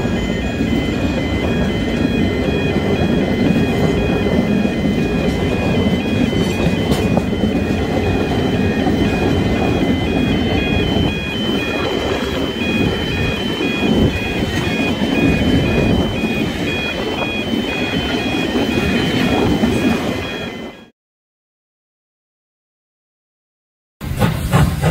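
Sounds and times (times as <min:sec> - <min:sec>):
train wheels rumbling on rails: 0:00.0 - 0:20.9, 0:24.0 - 0:24.9
two-tone crossing warning alarm: 0:00.0 - 0:20.9.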